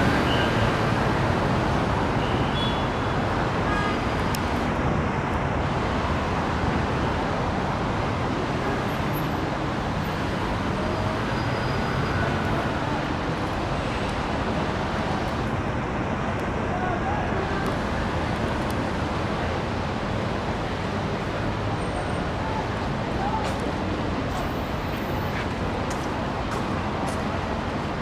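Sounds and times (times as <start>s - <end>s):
road traffic: 0.0s - 28.0s.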